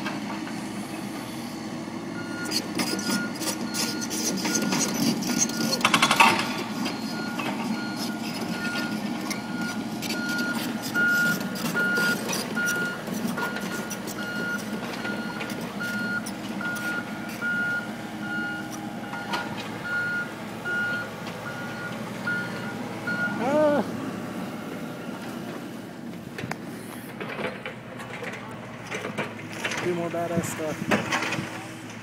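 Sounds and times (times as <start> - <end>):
diesel engines running: 0.0 - 32.0
backup alarm beeping: 2.2 - 23.7.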